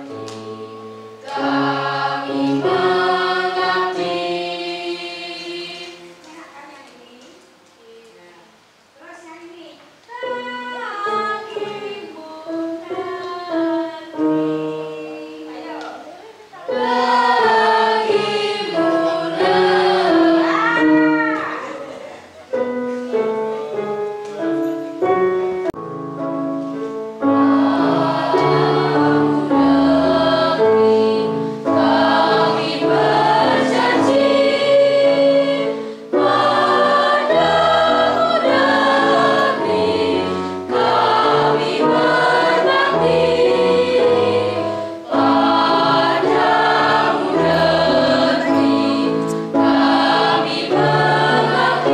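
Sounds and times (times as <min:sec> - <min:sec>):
mixed choir singing: 0:00.0 - 0:06.2, 0:10.4 - 0:15.6, 0:16.6 - 0:20.9, 0:27.2 - 0:51.9.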